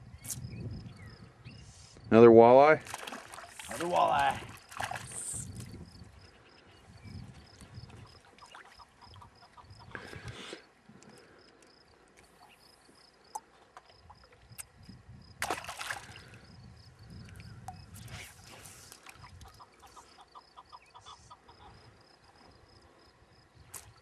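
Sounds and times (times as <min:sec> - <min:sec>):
water splashing and sloshing: 0:02.7 - 0:05.8, 0:07.4 - 0:09.6, 0:15.4 - 0:16.5, 0:17.7 - 0:20.1.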